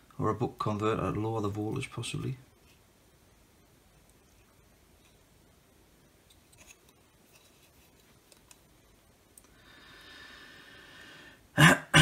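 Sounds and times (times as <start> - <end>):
faint steady hiss: 0.0 - 12.0.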